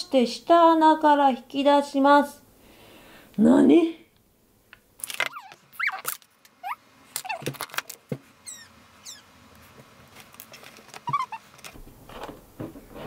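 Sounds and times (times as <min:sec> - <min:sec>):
short high squeaks: 0:05.2 - 0:07.5, 0:08.4 - 0:09.3, 0:11.0 - 0:11.5.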